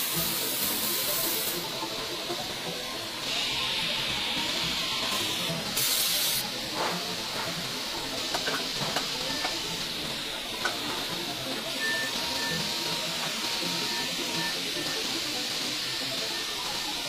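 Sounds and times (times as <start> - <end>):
machinery hissing: 0.0 - 17.0.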